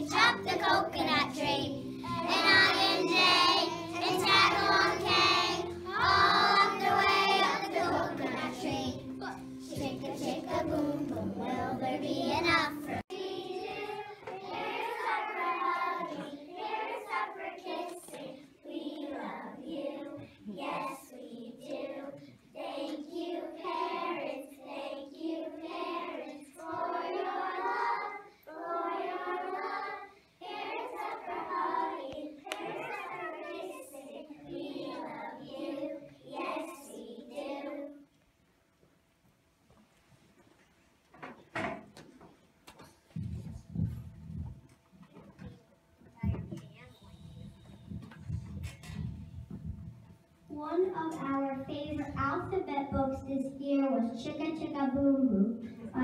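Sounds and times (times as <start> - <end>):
children singing in unison: 0.0 - 38.0.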